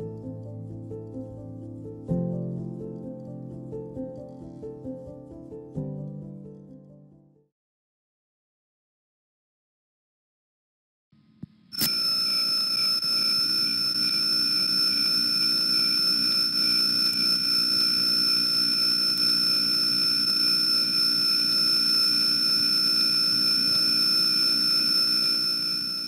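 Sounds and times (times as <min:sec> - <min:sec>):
high-pitched whining tones: 0:11.8 - 0:26.0
insects buzzing: 0:11.8 - 0:26.0.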